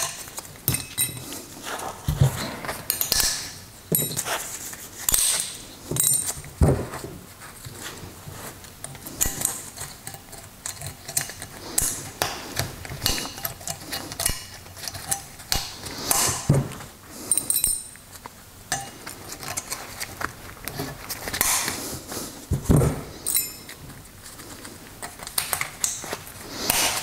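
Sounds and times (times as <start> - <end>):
metal clinks and taps: 2.9 - 4.3, 17.3 - 18.0, 23.2 - 23.8.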